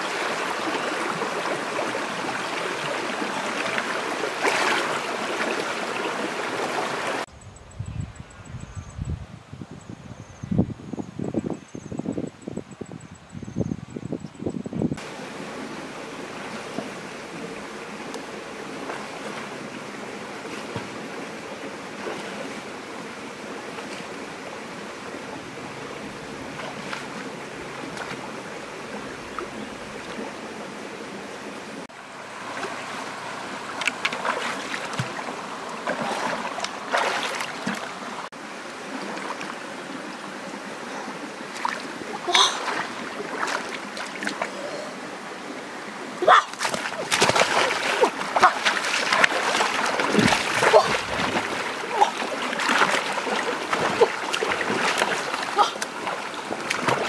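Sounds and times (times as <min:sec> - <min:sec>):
shallow stream flowing: 0:00.0 - 0:07.3, 0:15.0 - 0:57.0
splashing in water: 0:00.0 - 0:07.3, 0:32.3 - 0:38.3, 0:41.5 - 0:44.7, 0:46.2 - 0:57.0.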